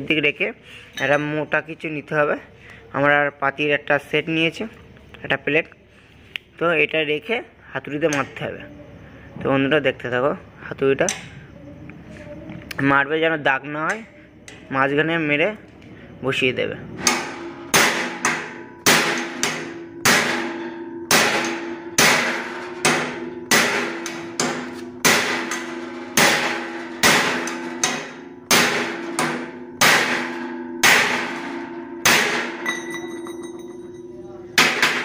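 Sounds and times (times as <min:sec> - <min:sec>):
ringing hammer strikes on metal: 0:17.0 - 0:35.0.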